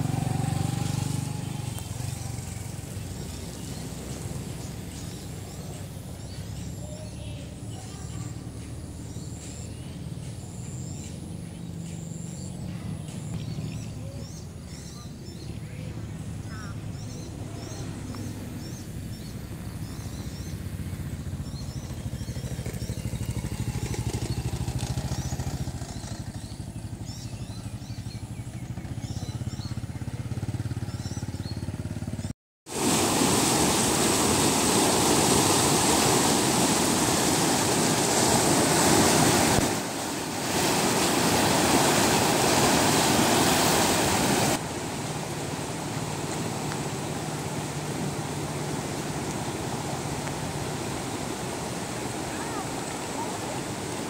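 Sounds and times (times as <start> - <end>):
floodwater rushing: 0.0 - 6.8, 15.8 - 27.4, 32.7 - 54.0.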